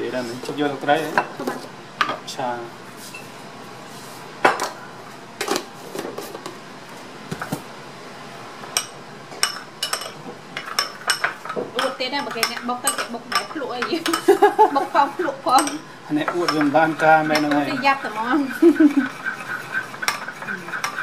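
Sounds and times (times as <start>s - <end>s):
metal spoon clinking ceramic bowl: 15.6s - 17.6s.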